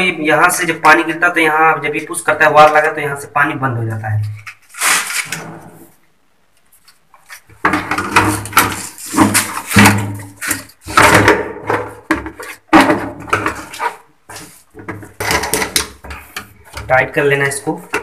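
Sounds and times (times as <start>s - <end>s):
toilet cistern rubbing and knocking: 7.5s - 17.0s.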